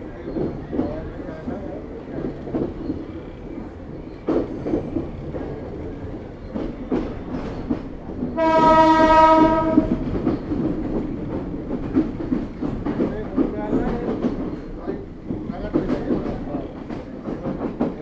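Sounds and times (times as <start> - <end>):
train wheels clattering: 0.2 - 18.0
train horn blast: 8.4 - 10.0.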